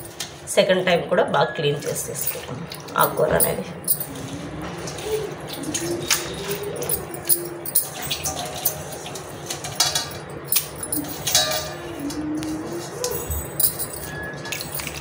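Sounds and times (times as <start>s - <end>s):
metallic clinks against pan: 9.6s - 11.9s.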